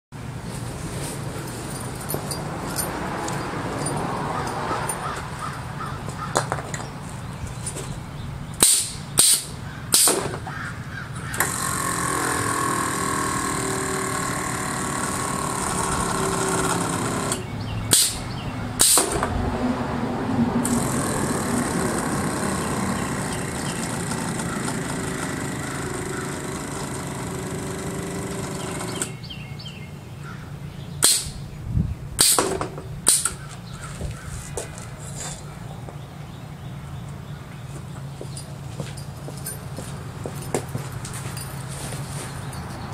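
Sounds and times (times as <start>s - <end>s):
air valve bursts: 8.6s - 10.2s, 17.9s - 18.2s, 18.8s - 19.2s
air compressor droning and whining: 11.3s - 18.2s, 20.6s - 29.3s.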